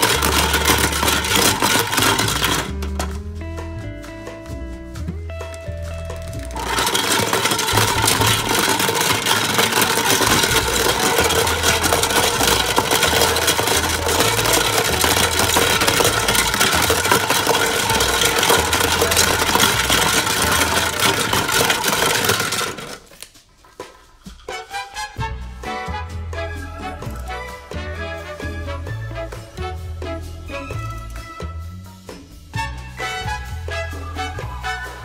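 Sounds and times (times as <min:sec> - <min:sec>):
toy washing machine motor whirring: 0:00.0 - 0:02.9, 0:06.4 - 0:24.5
plastic toys rattling: 0:00.0 - 0:03.2, 0:05.5 - 0:24.8.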